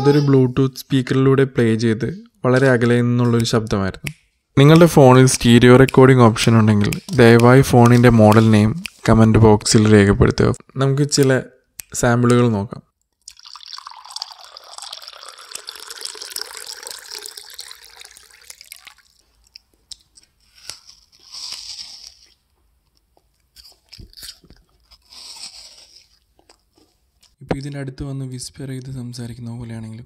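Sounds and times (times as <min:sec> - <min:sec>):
water pouring into glass: 0:13.3 - 0:19.3
child chewing apple: 0:18.6 - 0:27.4.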